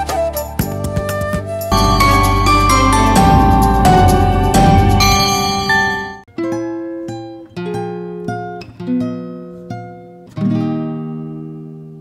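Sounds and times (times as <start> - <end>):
guitar chords: 1.7 - 6.6.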